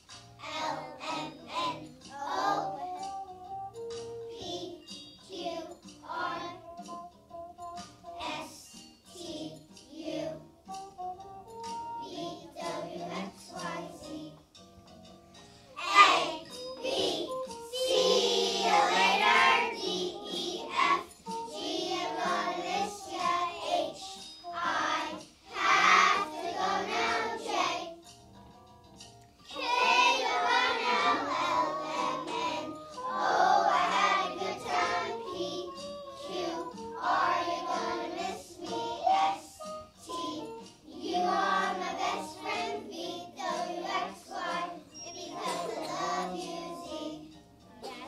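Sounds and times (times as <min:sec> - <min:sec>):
children singing in unison: 0:00.4 - 0:03.0, 0:12.0 - 0:14.4, 0:15.8 - 0:28.0, 0:29.5 - 0:47.3.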